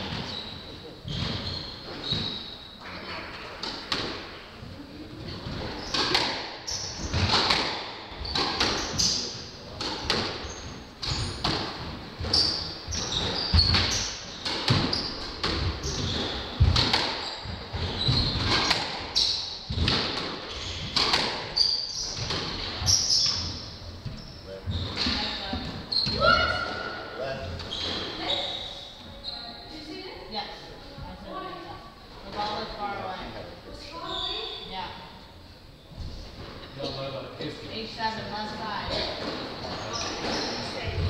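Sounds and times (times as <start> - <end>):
shoes squeaking on wooden floor: 0.0 - 4.1, 5.2 - 29.8, 33.9 - 34.8, 38.8 - 41.0
squash ball hits: 5.8 - 9.2, 11.0 - 21.5.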